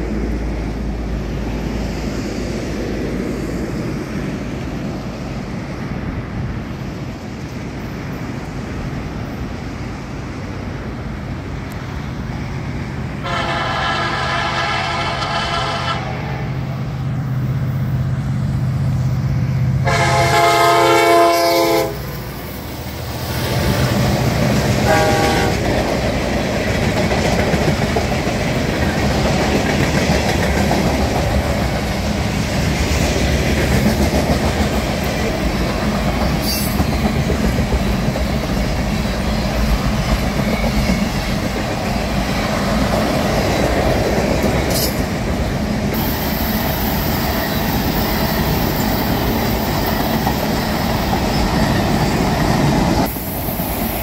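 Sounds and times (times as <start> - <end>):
train wheels rumbling on rail: 0.0 - 54.0
wheels clacking over rail joints: 23.3 - 53.1.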